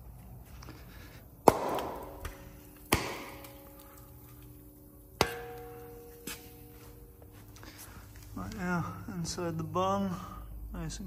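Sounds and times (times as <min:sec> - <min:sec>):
sharp metal clanks with ringing: 0:05.2 - 0:07.3.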